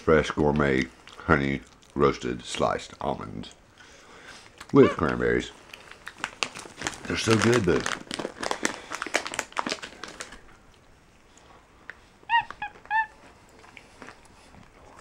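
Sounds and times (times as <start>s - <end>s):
monkey high-pitched calls: 4.8s - 5.1s, 12.3s - 13.2s
packaging crinkling: 5.1s - 10.5s.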